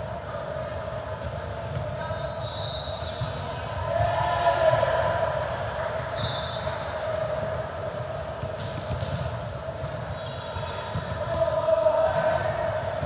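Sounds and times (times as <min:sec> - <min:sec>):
volleyball bouncing on court: 0:00.2 - 0:13.0.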